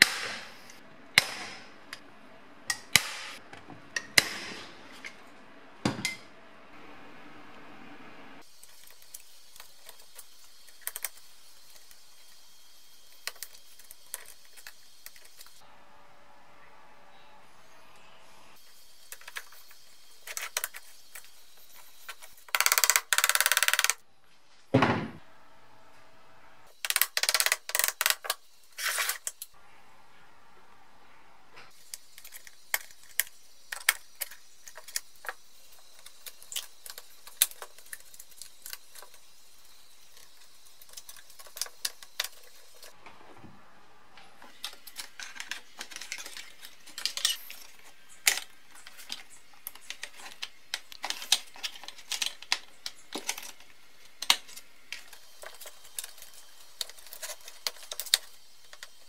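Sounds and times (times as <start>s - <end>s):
plastic parts clicking: 22.5s - 24.0s, 26.8s - 29.5s, 44.5s - 59.0s.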